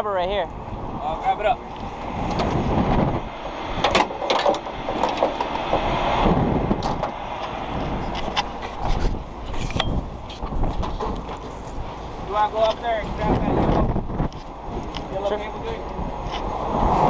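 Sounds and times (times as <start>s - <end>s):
sharp knocks and clanks: 3.4s - 5.9s.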